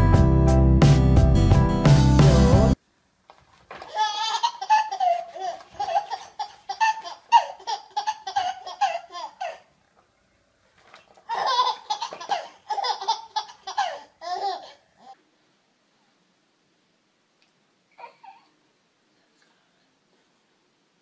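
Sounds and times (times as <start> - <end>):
baby laughing: 3.8 - 9.7, 11.3 - 15.2.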